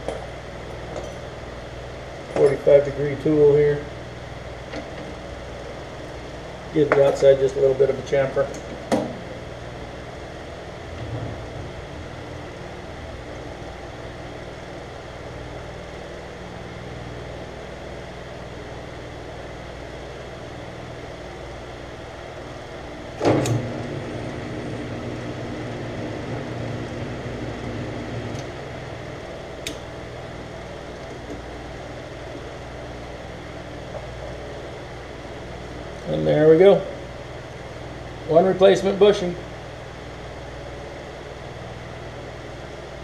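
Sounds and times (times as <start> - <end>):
metal lathe humming: 19.6 - 36.1.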